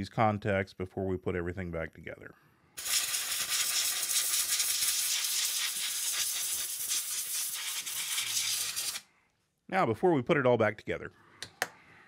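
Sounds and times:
compressed air spray hissing: 2.8s - 9.1s.

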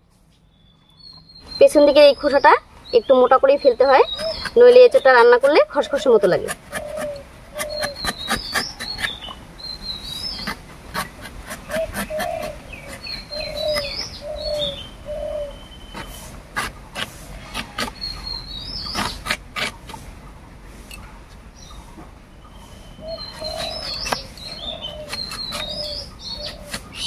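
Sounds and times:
low short bird calls: 0.4s - 5.2s, 5.8s - 20.0s, 21.6s - 27.0s
high repeated bird chirping: 0.6s - 19.4s, 21.6s - 27.0s
blade slicing fruit rind: 4.1s - 9.3s, 15.9s - 19.9s, 23.4s - 27.0s.

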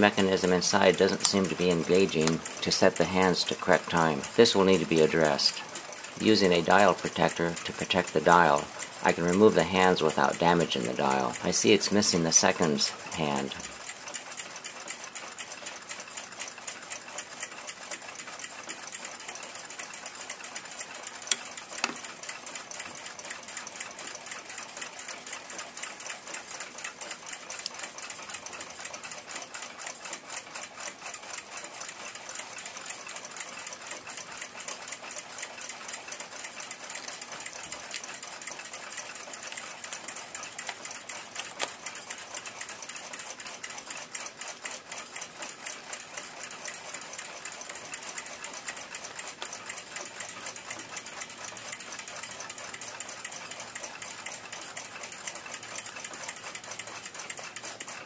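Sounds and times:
mechanical ticking: 0.0s - 58.0s
sharp clicks: 36.1s - 44.2s.

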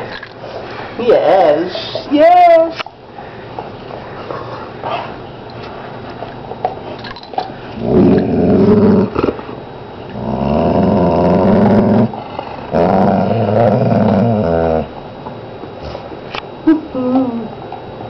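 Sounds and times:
long low growls: 7.8s - 9.4s, 10.1s - 14.9s.

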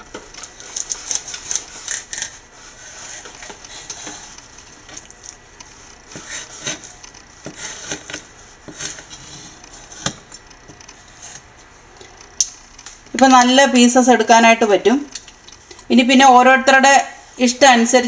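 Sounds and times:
knife scraping fish: 0.6s - 5.4s, 6.1s - 10.1s.

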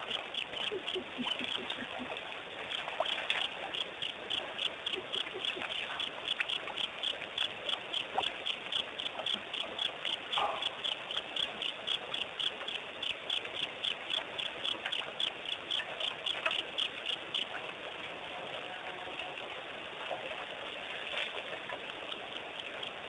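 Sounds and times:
crickets chirping: 0.0s - 17.6s, 21.9s - 23.0s.

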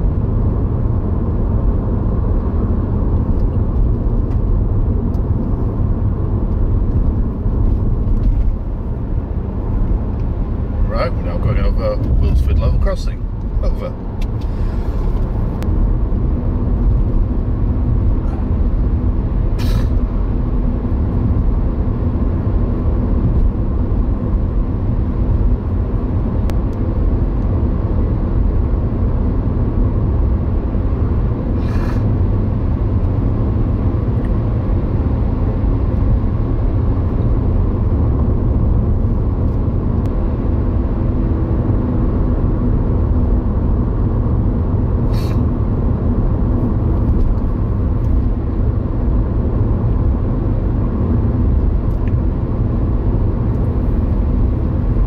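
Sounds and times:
car road and engine noise: 0.0s - 55.0s
brief hisses: 19.6s - 20.0s, 45.1s - 45.4s.

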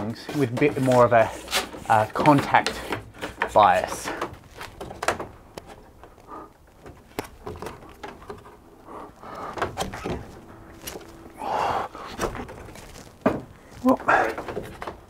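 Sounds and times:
hands slapping wooden holds: 0.0s - 11.1s.

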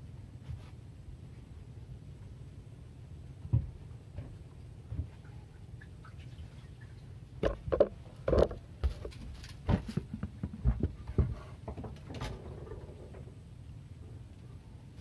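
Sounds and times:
knocks and thumps in wooden boat: 3.4s - 5.2s, 7.4s - 13.3s.

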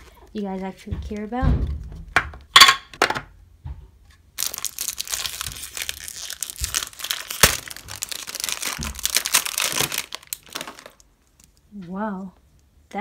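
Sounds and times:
plastic wrapping crinkling and tearing: 4.4s - 11.6s.

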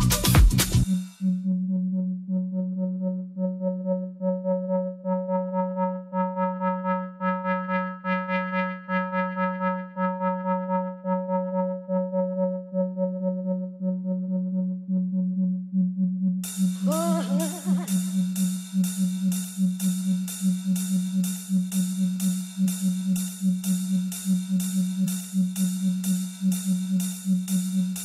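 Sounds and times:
techno beat: 0.0s - 1.2s, 16.5s - 28.0s
pulsing synthesizer note: 0.0s - 27.9s.

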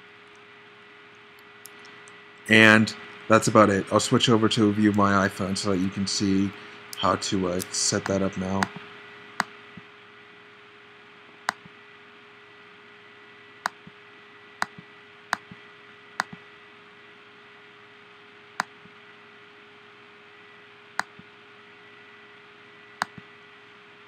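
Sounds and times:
faint hiss and hum: 0.0s - 24.0s
computer mouse clicks: 14.6s - 15.6s, 16.2s - 16.4s, 21.0s - 21.3s, 23.0s - 23.3s.

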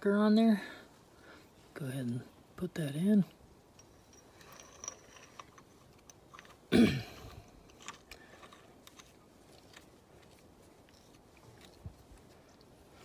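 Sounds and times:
person coughing: 6.7s - 7.4s.

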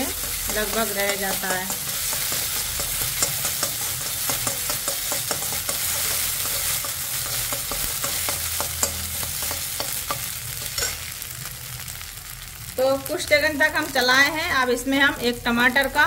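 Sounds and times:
spatula scraping metal pan: 0.0s - 11.1s
food sizzling in oil: 0.0s - 16.0s.

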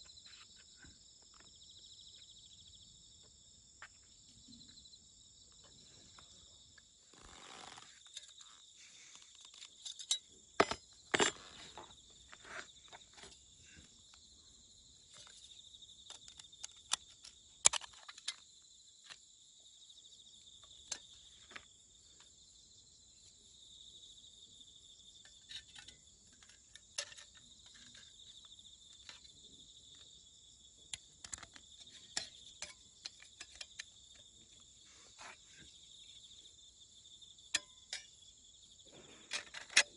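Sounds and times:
high-pitched insect chorus: 0.0s - 39.9s
metal plates clicking and clinking: 31.2s - 34.0s.

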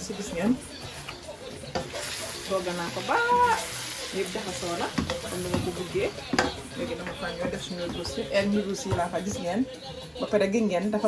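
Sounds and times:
food sizzling in a pan: 0.0s - 7.4s.

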